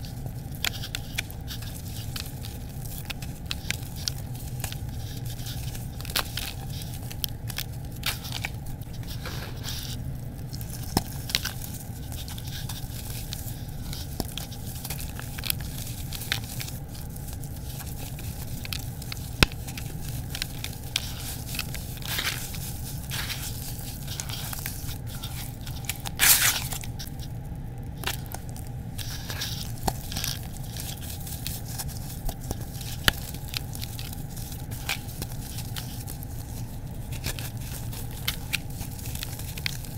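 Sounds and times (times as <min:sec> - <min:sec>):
grit crackling and crunching: 0:00.0 - 0:39.9.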